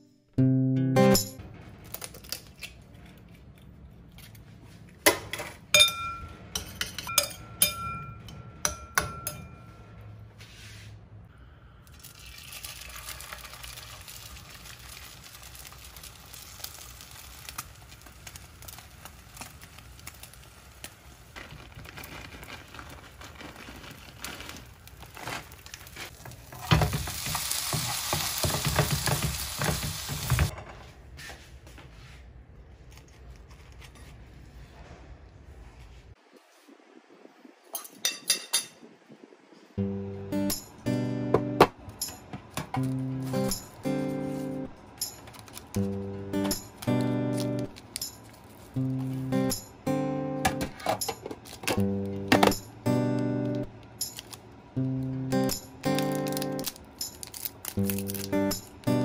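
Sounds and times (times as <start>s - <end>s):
egg sizzling in frying pan: 12.2s - 21.8s, 25.5s - 30.5s.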